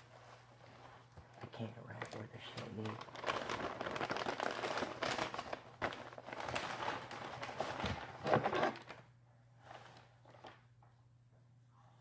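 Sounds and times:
wrapping paper crinkling: 0.1 - 9.0.

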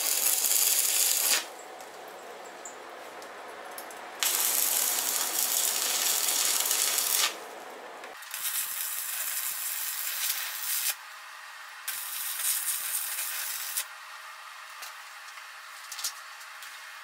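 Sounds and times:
welding arc crackling and hissing: 0.0 - 1.5, 4.2 - 11.1, 11.9 - 13.9.

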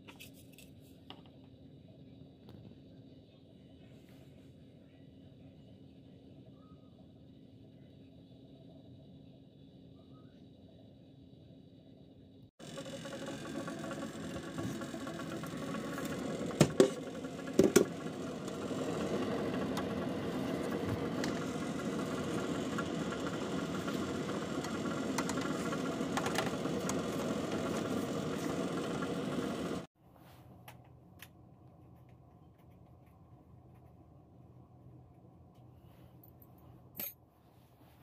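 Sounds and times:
faint low hum: 0.1 - 12.5
fan humming: 12.6 - 35.7.

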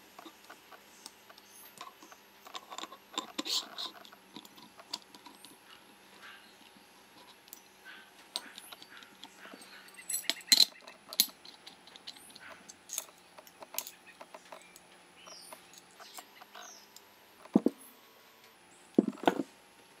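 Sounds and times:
high bird chirps: 13.9 - 17.0.

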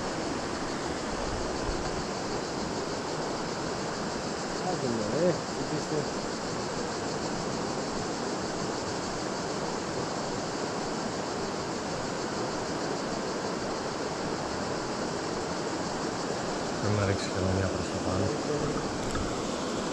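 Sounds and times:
river water rushing over rapids: 0.0 - 19.9.

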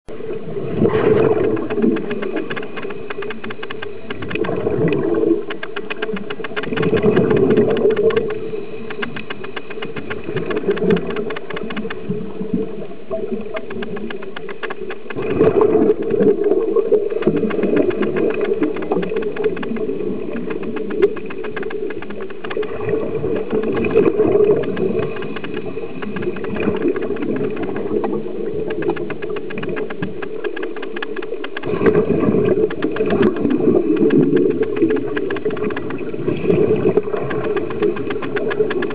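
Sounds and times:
exhaled bubbles surging: 0.1 - 5.5, 6.1 - 9.2, 15.2 - 29.8, 31.6 - 38.9.

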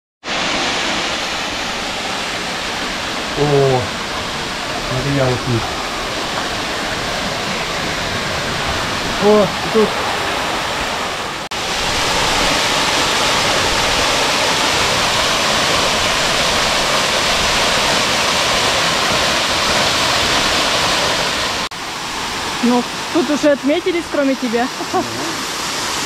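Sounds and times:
waterfall splashing into pool: 0.2 - 26.0.

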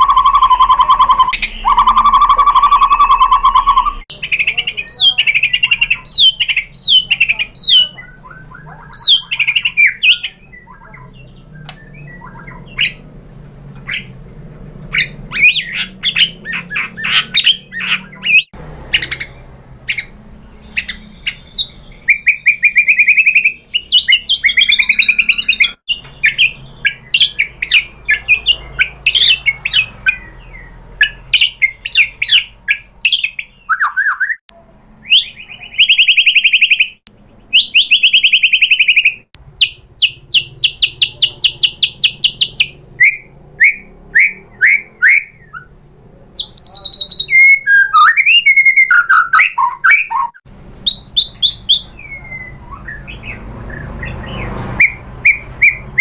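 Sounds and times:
bird singing whistled song: 0.0 - 13.1, 13.8 - 14.2, 14.9 - 34.4, 35.0 - 45.8, 46.4 - 56.0.

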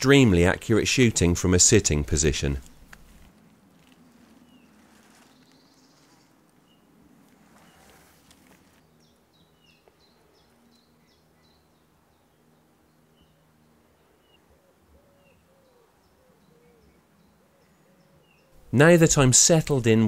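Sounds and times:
small birds chirping: 2.4 - 18.8
low cooing call: 14.0 - 18.7.

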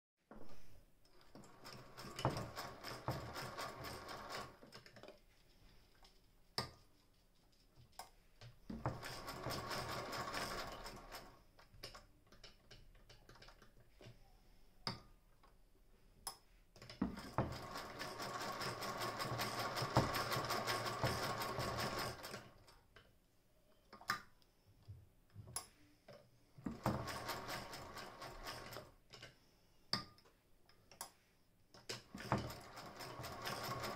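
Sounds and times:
hand-crank sewing machine stitching: 1.1 - 5.1, 8.7 - 11.4, 16.8 - 22.8, 26.6 - 29.0, 31.9 - 33.9.

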